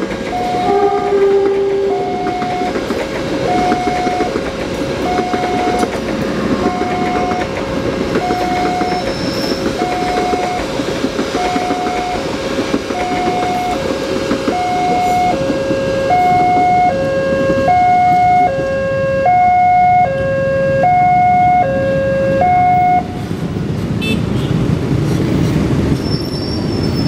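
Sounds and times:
level crossing two-tone alarm: 0.3s - 4.4s, 5.0s - 6.0s, 6.6s - 7.5s, 8.2s - 9.1s, 9.8s - 10.7s, 11.4s - 12.3s, 12.9s - 13.8s, 14.5s - 23.1s.

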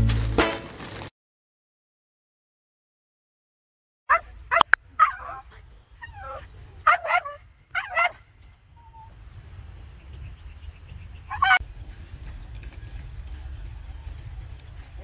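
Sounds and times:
steady low rumble: 4.4s - 15.0s
small dogs yipping and whining: 5.0s - 8.2s.

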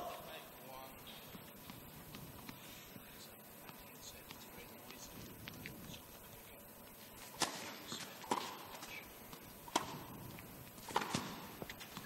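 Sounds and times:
tennis racket hitting ball: 7.2s - 12.0s.

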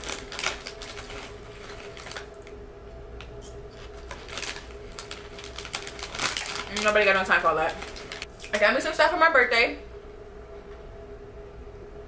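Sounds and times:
chips crunching: 0.0s - 2.6s, 3.8s - 8.3s
plastic bag crinkling: 0.0s - 2.6s, 3.8s - 8.6s.

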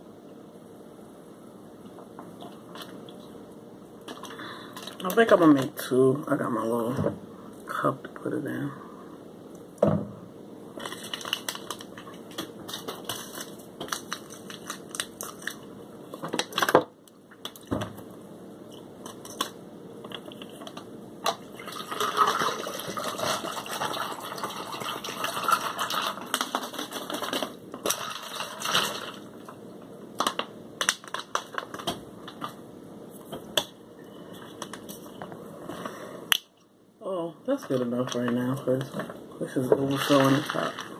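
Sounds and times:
packets crinkling and tearing: 10.8s - 16.8s, 22.2s - 29.3s, 30.2s - 32.6s
liquid pouring into a cup: 21.5s - 26.4s.

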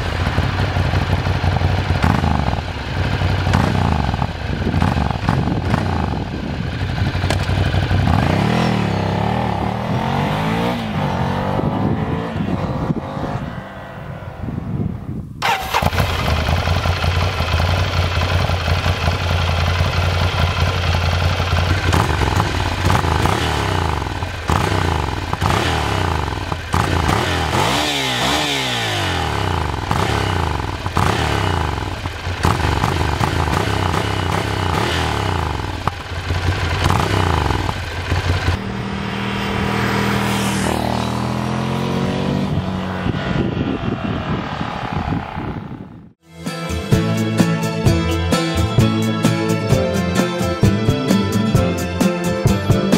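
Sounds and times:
motorcycle engine idling: 0.0s - 10.0s, 15.4s - 28.5s, 29.1s - 38.8s
motorcycle pulling away: 0.0s - 14.5s, 15.4s - 45.8s.

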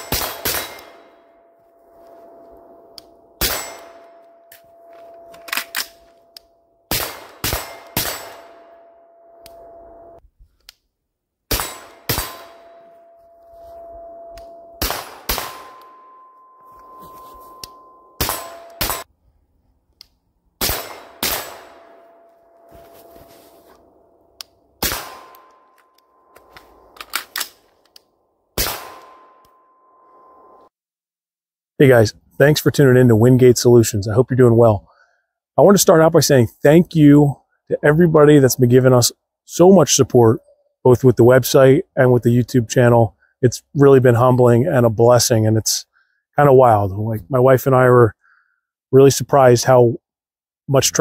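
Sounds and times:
faint steady tone: 0.7s - 6.9s, 7.7s - 10.2s, 12.3s - 19.7s, 21.6s - 24.4s, 29.0s - 30.7s
suppressed rifle shots: 24.8s - 25.5s, 28.6s - 29.2s.

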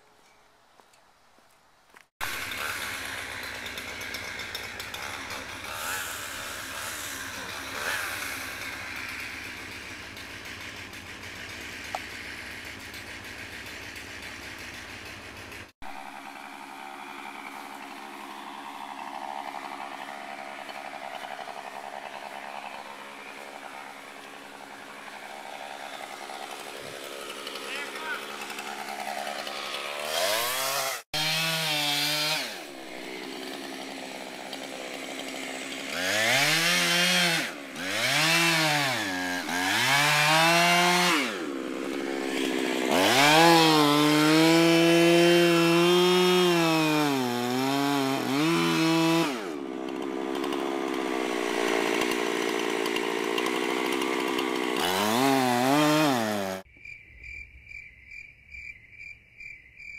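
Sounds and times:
chainsaw cutting wood: 2.2s - 56.7s
crickets chirping: 56.7s - 59.9s.

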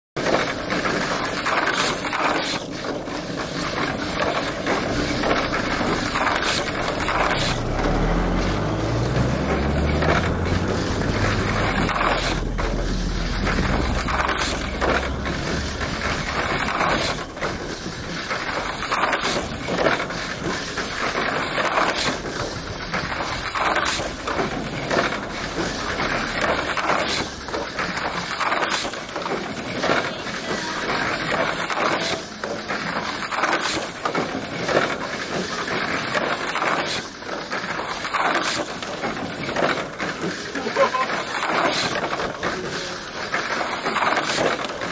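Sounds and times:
toy cars clacking on track walls: 0.2s - 44.9s
toy cars whirring on track: 0.2s - 44.9s
low hum rising in pitch: 4.8s - 18.7s.

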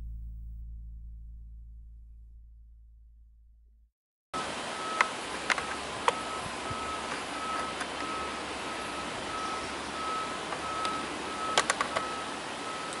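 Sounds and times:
reversing alarm beeping: 4.4s - 13.0s
sharp clicks: 10.5s - 12.1s.

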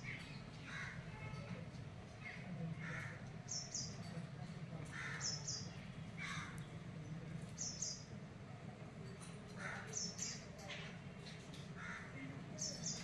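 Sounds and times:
crows cawing: 0.6s - 1.2s, 2.8s - 3.3s, 4.8s - 5.6s, 6.2s - 6.6s, 9.5s - 10.1s, 11.8s - 12.3s.

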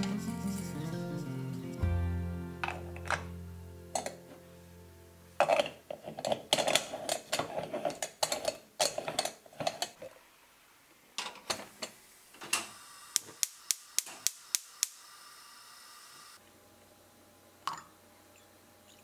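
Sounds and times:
gas stove igniter clicking: 13.2s - 15.0s.

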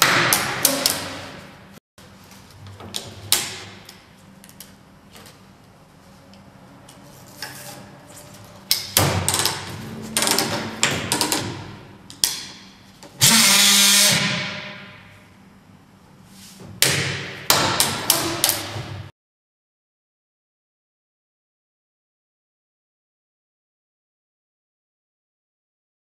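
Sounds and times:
strap sealing unit welding burst: 13.2s - 14.4s.

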